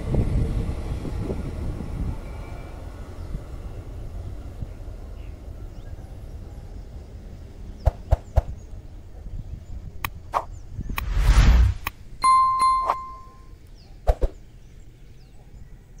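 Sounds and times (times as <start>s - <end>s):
quick whoosh: 10.3s - 11.9s
faint low rumble: 10.6s - 12.2s
bright bell ding: 12.2s - 13.5s.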